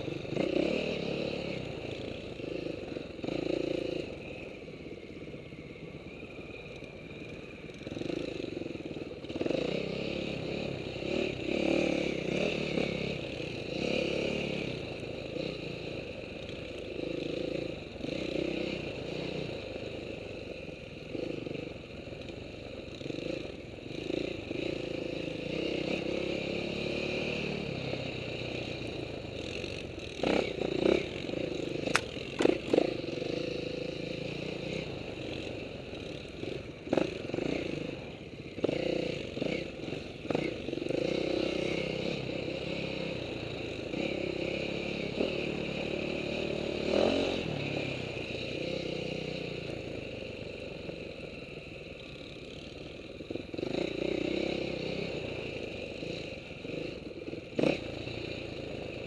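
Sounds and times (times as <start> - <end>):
dirt bike engine revving: 0.3 - 4.0, 29.4 - 35.4, 36.0 - 48.0, 53.6 - 58.5.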